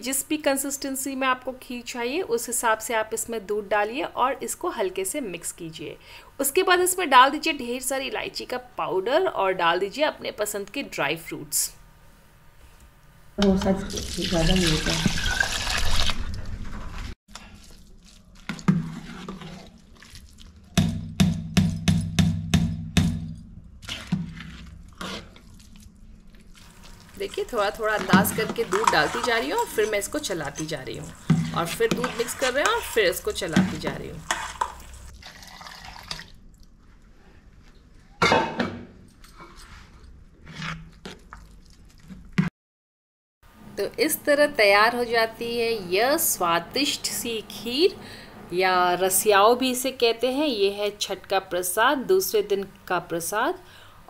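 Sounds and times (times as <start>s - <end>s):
metal spoon stirring: 17.7s - 21.0s, 23.8s - 35.1s
milk pouring into pot: 34.7s - 36.4s.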